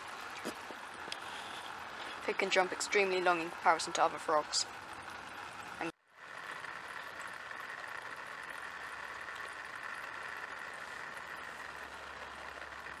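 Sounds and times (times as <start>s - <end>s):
background hum and hiss: 0.0s - 13.0s.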